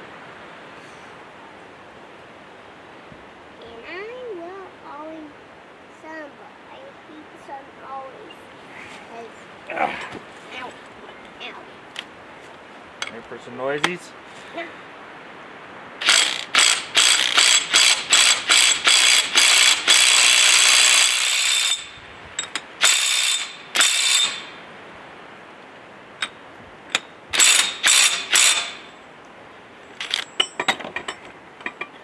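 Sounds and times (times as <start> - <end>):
hand ratchet clicking: 16.0 - 24.5, 26.9 - 28.8.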